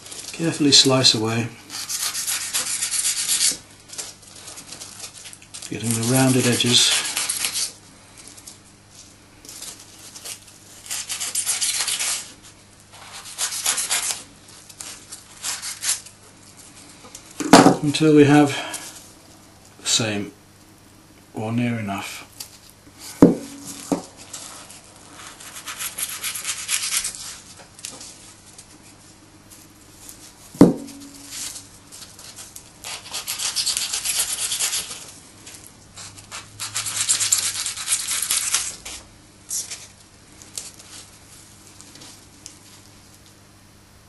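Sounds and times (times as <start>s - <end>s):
sharp knocks: 30.6s - 31.2s.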